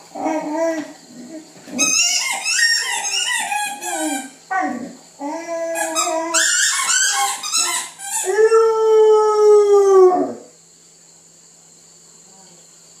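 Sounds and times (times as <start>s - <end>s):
dog howling: 0.1s - 1.4s, 3.7s - 7.3s, 8.2s - 10.6s
dog yipping and whining: 1.7s - 8.7s.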